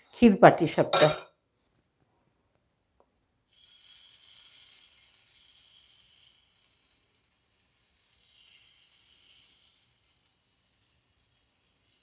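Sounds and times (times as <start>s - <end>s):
batter sizzling on hot pan: 3.4s - 12.0s.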